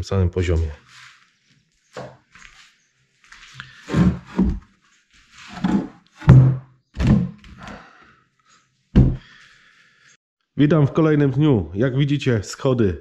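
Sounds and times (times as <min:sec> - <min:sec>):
heavy thuds on wood: 0:05.6 - 0:07.4, 0:09.0 - 0:09.3.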